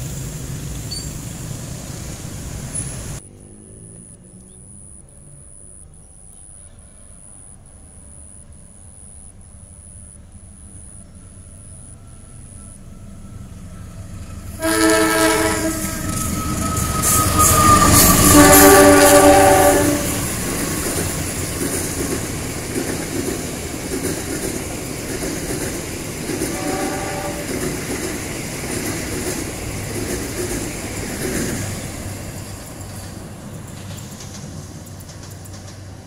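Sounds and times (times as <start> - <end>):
train rumbling on rails: 0.0 - 4.0, 9.8 - 36.0
train horn blasts: 14.4 - 20.3, 26.5 - 27.7.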